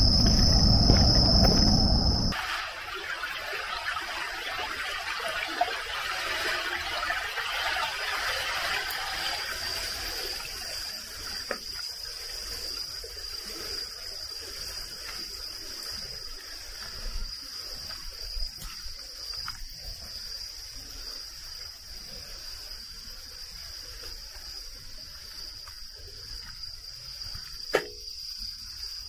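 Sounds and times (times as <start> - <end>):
insects trilling: 0.0 - 29.0.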